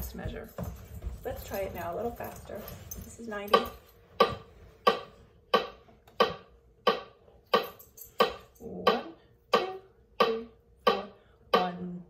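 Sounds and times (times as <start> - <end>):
metronome ticking: 3.5 - 12.0.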